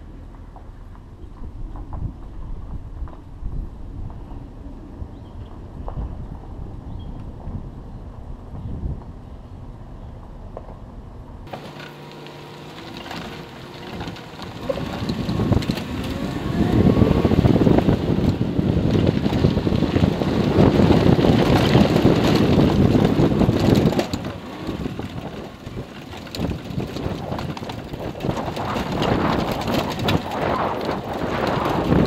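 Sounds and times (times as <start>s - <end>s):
wind buffeting microphone: 1.0s - 32.0s
trailer rattling over gravel: 11.5s - 32.0s
truck engine running: 11.5s - 32.0s.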